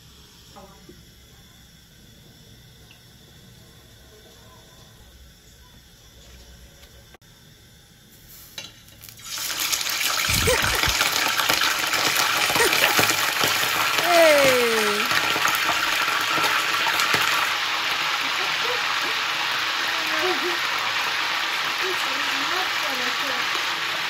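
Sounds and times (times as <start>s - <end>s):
fish frying in oil: 8.6s - 24.0s.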